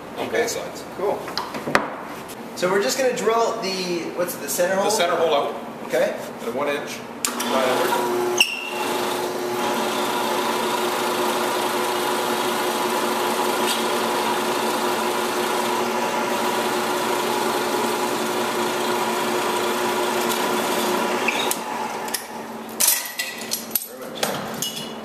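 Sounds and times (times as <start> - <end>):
drill press humming: 7.3 - 22.7.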